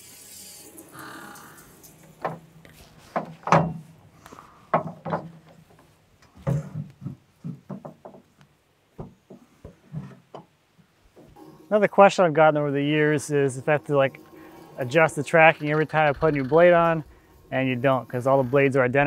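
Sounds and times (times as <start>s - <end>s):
metal knocks and clanks: 3.1s - 4.0s, 4.7s - 5.7s, 6.4s - 8.3s.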